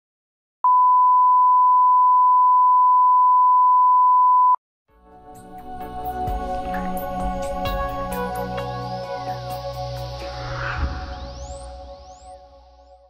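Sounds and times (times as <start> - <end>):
music with sustained notes: 4.9 - 13.0.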